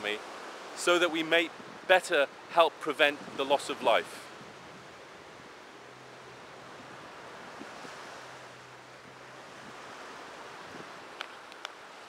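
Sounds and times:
small waves breaking on beach: 0.0 - 12.0
wind on microphone: 1.4 - 1.9, 3.0 - 5.6, 6.4 - 11.5.

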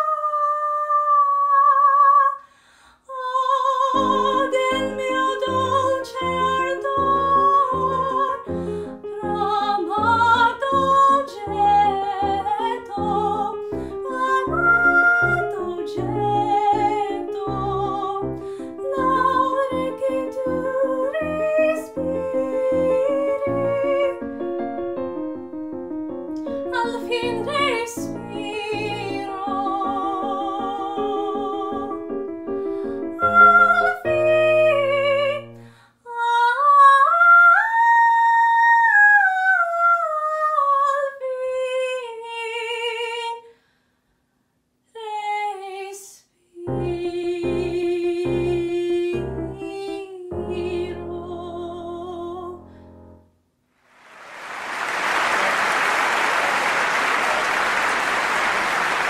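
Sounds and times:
woman singing with vibrato: 0.0 - 24.2, 26.7 - 32.1, 33.1 - 43.5, 45.0 - 52.8
piano accompaniment: 3.8 - 35.7, 46.7 - 53.4
applause: 53.9 - 59.0.

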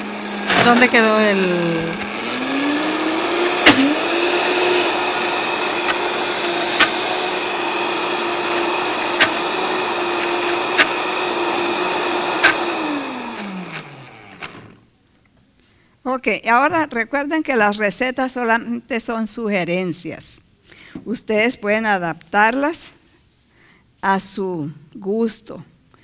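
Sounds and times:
blender motor running: 0.0 - 14.8.

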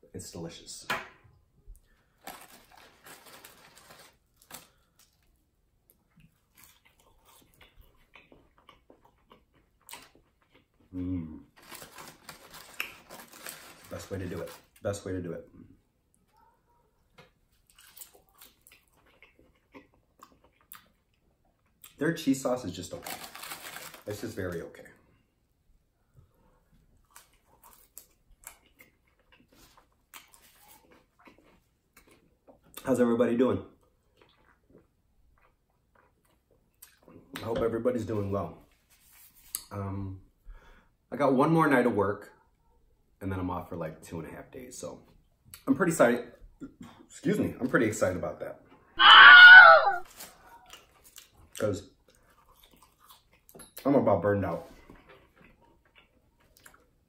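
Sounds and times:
quiet chewing: 1.7 - 13.0, 16.1 - 22.0, 26.1 - 32.8, 33.8 - 37.4, 50.2 - 53.8, 54.6 - 57.0
paper wrapper rustling: 2.2 - 5.1, 11.6 - 14.8, 22.9 - 24.3.

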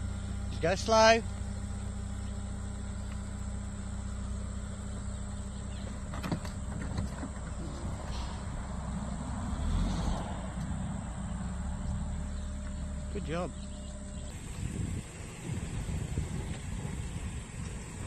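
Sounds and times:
car engine running low: 0.0 - 18.0
tyre noise on rough ground: 5.7 - 8.9.

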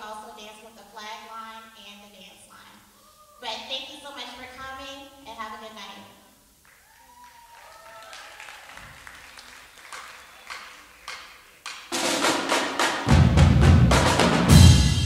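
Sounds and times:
audience applause: 6.6 - 12.7
scattered claps: 6.6 - 13.0.

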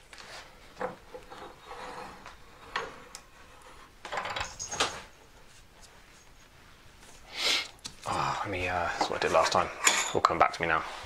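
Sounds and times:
metal tools knocking and scraping: 4.0 - 5.2, 9.0 - 10.5.

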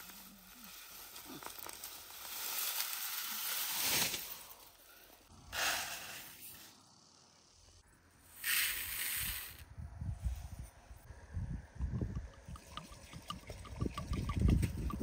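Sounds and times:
grass stalks rustling and swishing: 0.0 - 4.8.

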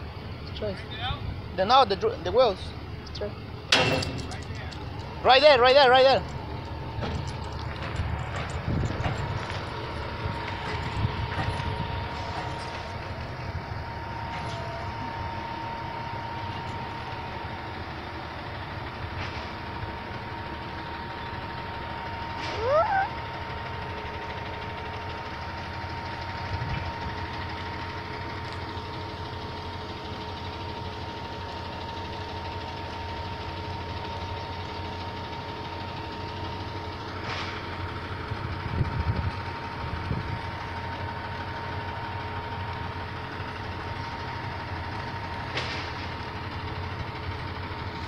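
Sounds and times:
truck engine idling: 0.0 - 48.0.

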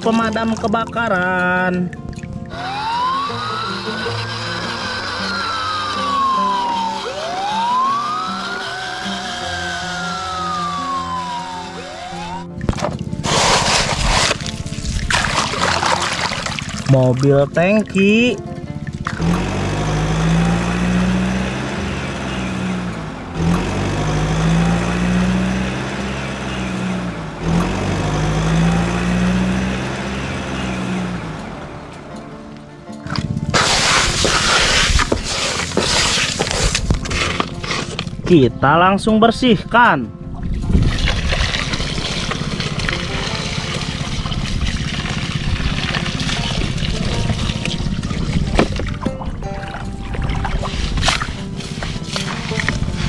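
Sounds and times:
toy truck engine sound effect: 2.5 - 12.6, 13.2 - 14.5, 33.1 - 38.1
water from hose gushing: 2.5 - 22.8, 33.1 - 38.1, 40.6 - 53.0
water splashing in plastic toy: 12.6 - 17.4, 40.6 - 53.0.

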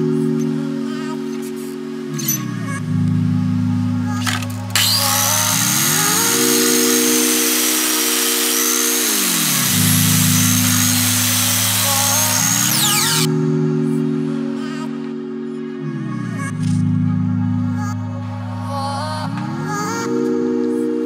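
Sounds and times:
background music: 0.0 - 21.0
mitre saw cutting: 4.2 - 13.3.

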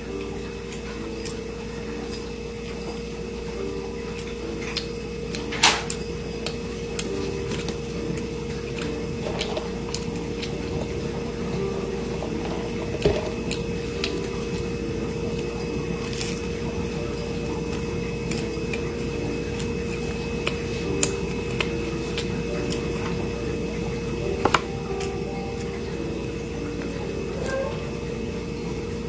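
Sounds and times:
steady hum: 0.0 - 29.0
person chewing food: 4.0 - 25.8.

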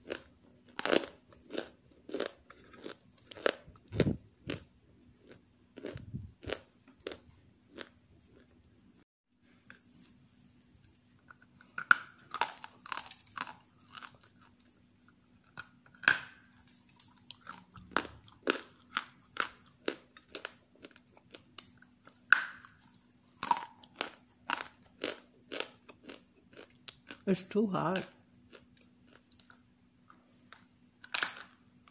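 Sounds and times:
dry cracks and snaps: 30.5 - 31.6.

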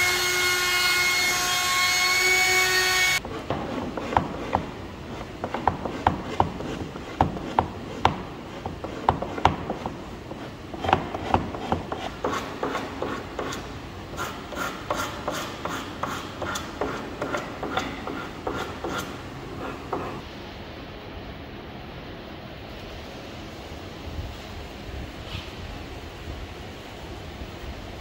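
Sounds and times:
wood rubbing strokes: 3.0 - 20.2.

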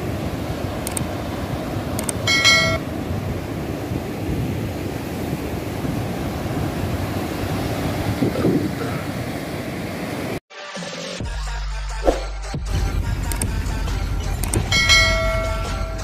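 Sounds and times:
surf breaking on beach: 0.0 - 10.4
click: 0.8 - 1.0, 2.0 - 2.2, 13.3 - 13.5, 14.4 - 14.7
short pitched ding: 2.3 - 2.8, 14.7 - 16.0.

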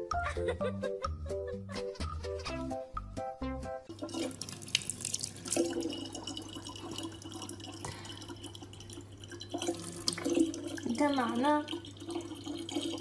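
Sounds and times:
tap water trickling into bottle: 3.9 - 13.0.

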